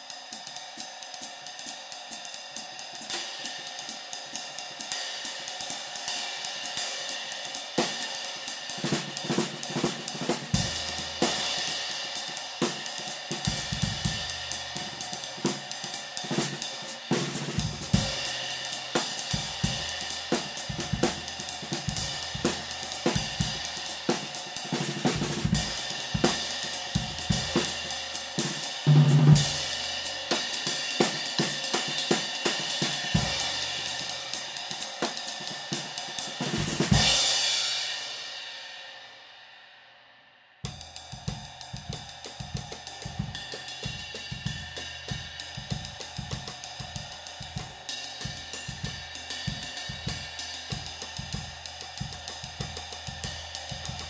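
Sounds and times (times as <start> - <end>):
hi-hat: 0.0 - 38.1, 40.7 - 54.0
snare drum: 7.6 - 37.4, 40.7 - 54.0
bass drum: 8.8 - 11.8, 12.7 - 15.6, 16.2 - 34.3, 36.0 - 37.4, 40.7 - 54.0.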